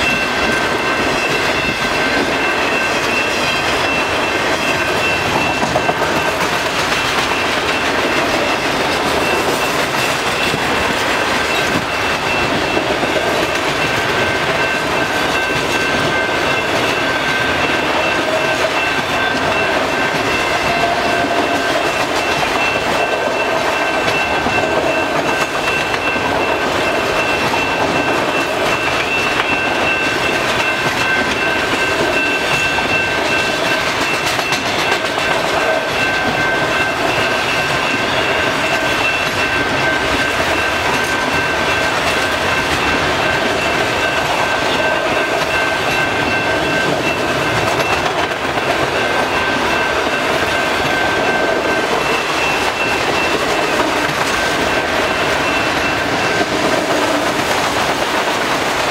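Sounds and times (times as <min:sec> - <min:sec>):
train wheels rumbling on rail: 0:00.0 - 0:58.9.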